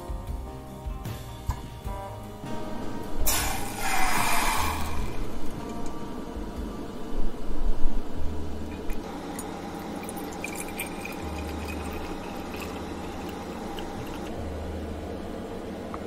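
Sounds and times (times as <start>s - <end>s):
hot water pouring into metal bath: 3.2s - 5.6s, 8.8s - 14.3s
liquid pouring into ceramic flask: 8.7s - 14.3s.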